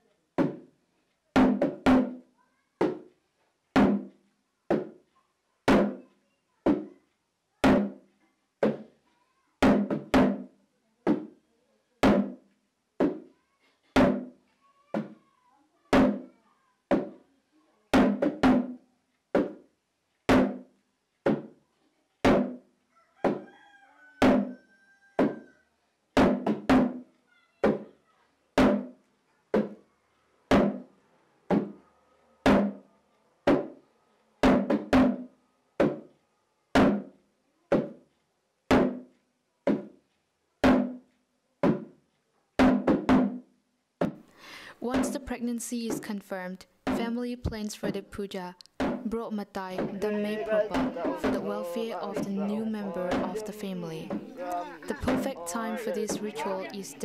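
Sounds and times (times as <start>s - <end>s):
drum beats: 0.0s - 0.7s, 1.4s - 2.2s, 3.8s - 5.1s, 5.7s - 6.1s, 7.6s - 8.9s, 9.6s - 10.5s, 12.0s - 13.3s, 14.0s - 14.4s, 15.9s - 16.3s, 16.9s - 17.2s, 17.9s - 18.8s, 19.4s - 19.7s, 20.3s - 21.6s, 22.2s - 23.4s, 24.2s - 24.5s, 26.2s - 27.8s, 28.6s - 29.0s, 30.5s - 30.9s, 31.5s - 31.8s, 32.4s - 32.8s, 34.4s - 36.0s, 36.8s - 38.0s, 38.7s - 39.1s, 39.7s - 40.0s, 40.6s - 42.0s, 42.6s - 57.0s.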